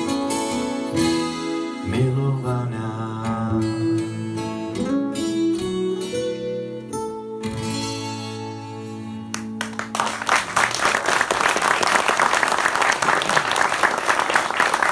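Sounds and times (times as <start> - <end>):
audience applause: 9.6 - 14.9.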